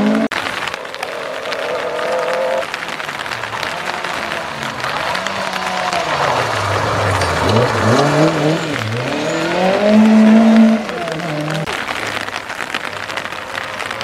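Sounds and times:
rally car engine revving past: 3.6 - 11.7.

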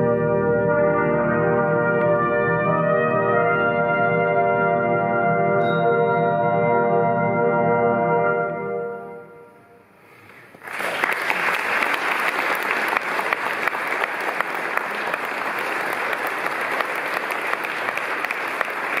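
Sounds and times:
brass band chord: 0.0 - 9.8
audience applause: 10.4 - 19.0.

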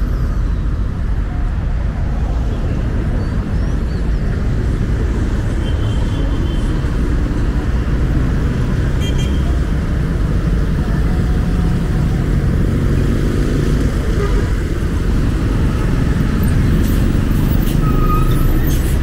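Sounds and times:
traffic rumble: 0.0 - 19.0.

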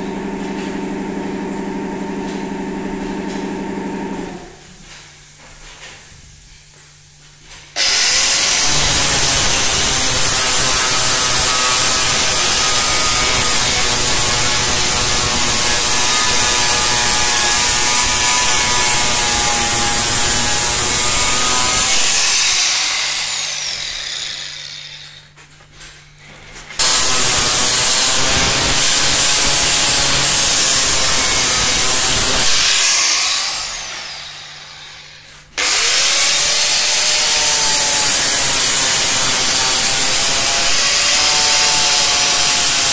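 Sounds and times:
angle grinder grinding steel: 7.8 - 25.3, 26.8 - 42.9.

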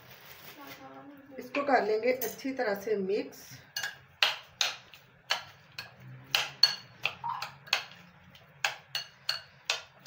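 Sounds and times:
metal spoon clinking glass bowl: 3.8 - 4.0, 5.3 - 8.0, 8.6 - 9.8.

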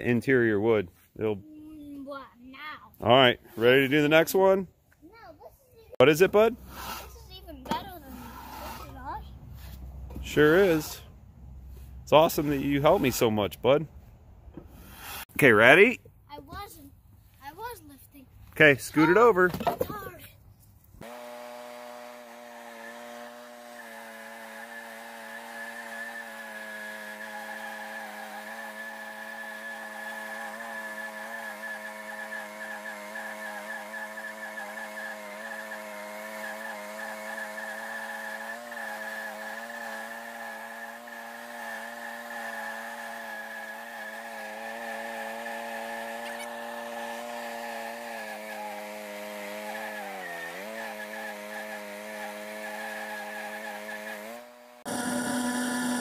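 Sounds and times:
band blade cutting log: 6.6 - 11.0, 14.6 - 15.3, 21.0 - 56.0
petrol engine running: 54.4 - 56.0.

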